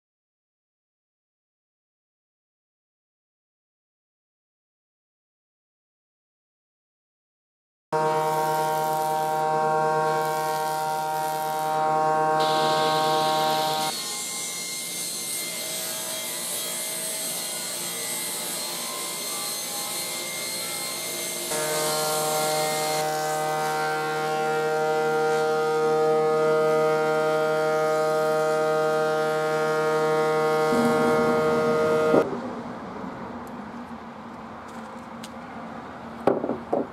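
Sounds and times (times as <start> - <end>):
planer with board passing through: 8.0 - 14.8, 20.8 - 32.4
table saw whine and cutting: 8.0 - 32.4
sharp knock: 36.3 - 36.9.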